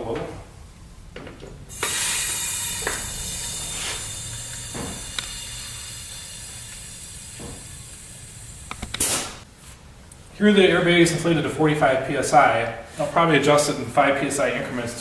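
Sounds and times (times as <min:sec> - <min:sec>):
burst of air: 0:01.7 - 0:09.5
compressed air hissing: 0:01.7 - 0:09.5.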